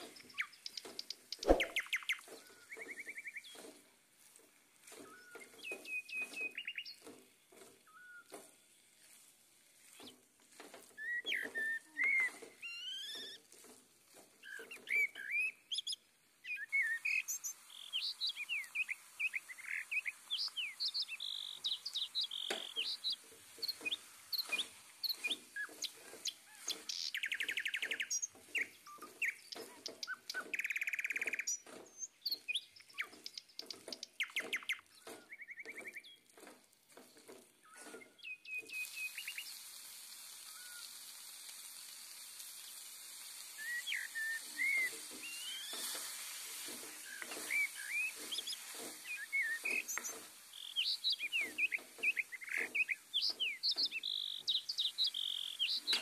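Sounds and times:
steady hiss: 0:00.0 - 0:35.1, 0:36.3 - 0:56.0
small birds chirping: 0:00.0 - 0:41.7, 0:42.4 - 0:56.0
spatula scraping metal pan: 0:44.5 - 0:52.9.

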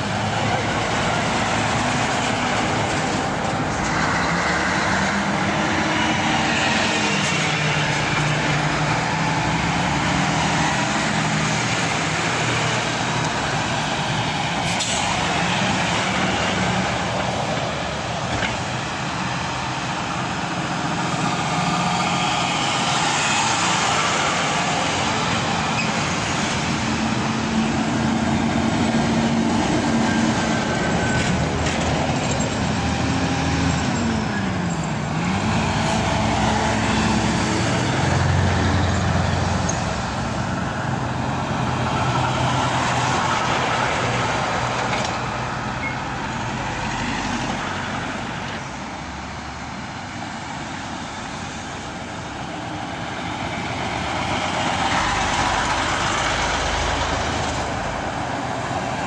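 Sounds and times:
diesel engines of passing lorries: 0:00.0 - 0:59.0
tyres rolling on road: 0:00.0 - 0:59.0.

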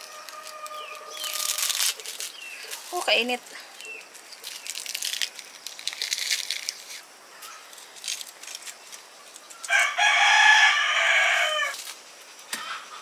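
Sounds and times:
rooster crowing: 0:00.0 - 0:01.8, 0:09.7 - 0:11.8
corn husks crackling over fire: 0:00.0 - 0:12.8.

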